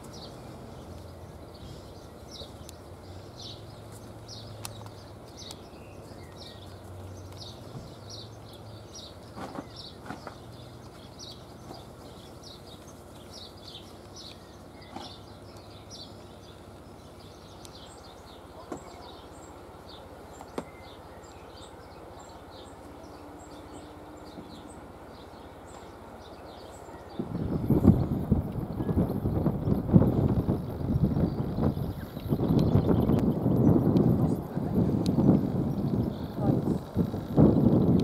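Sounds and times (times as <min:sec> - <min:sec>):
outdoor background noise: 0:00.0 - 0:38.0
faint clicks: 0:04.6 - 0:05.6.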